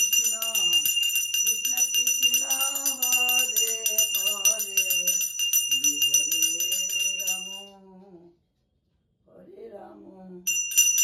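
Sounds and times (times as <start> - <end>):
hand bell ringing rapidly: 0.0 - 7.7, 10.5 - 11.0.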